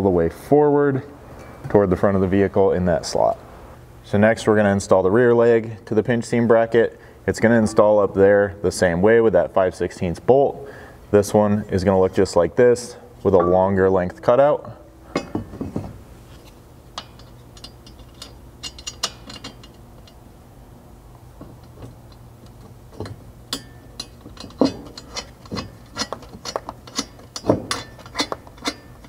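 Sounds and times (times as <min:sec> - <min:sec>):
light metal clicks and clinks: 0:17.0 - 0:20.2, 0:21.6 - 0:29.0.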